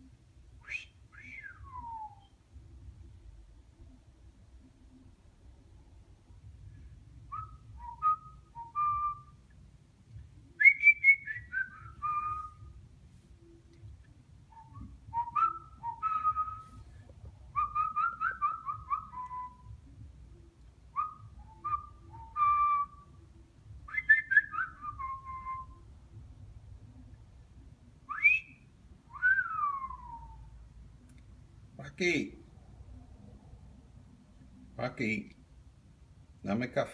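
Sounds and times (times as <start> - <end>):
parrot whistling: 7.3 - 9.4, 10.6 - 12.7, 14.5 - 16.8, 17.5 - 19.8, 20.9 - 23.2, 23.9 - 25.8, 28.1 - 30.4.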